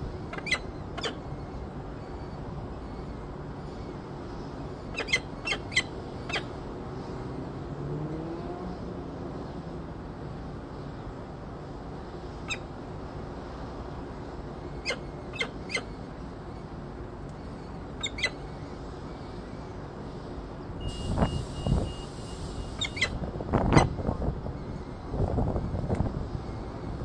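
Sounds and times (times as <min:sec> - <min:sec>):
falcon chirps: 0:14.8 - 0:16.0, 0:18.0 - 0:18.4, 0:22.7 - 0:23.2
wind rumble on microphone: 0:20.7 - 0:27.0.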